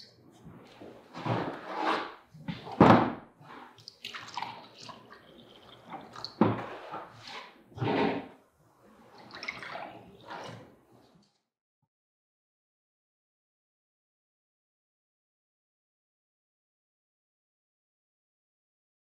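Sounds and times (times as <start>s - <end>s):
water pouring: 3.4s - 8.1s, 9.0s - 11.2s.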